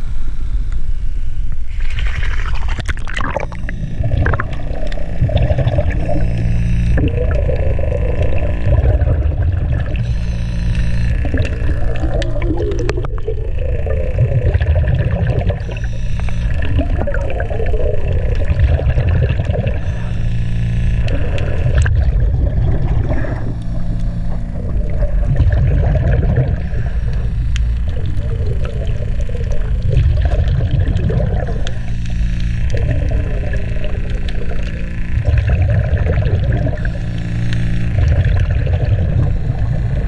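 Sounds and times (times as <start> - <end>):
low hum: 0.0 - 40.0
underwater low rumble: 0.0 - 40.0
bubbling of exhaled air: 1.6 - 40.0.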